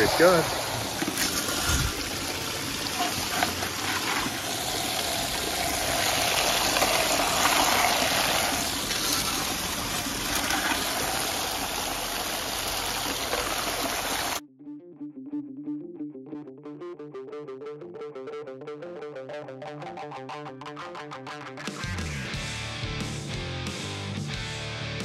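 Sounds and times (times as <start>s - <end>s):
running water rushing: 0.0s - 14.4s
sloshing wet gravel: 0.0s - 14.4s.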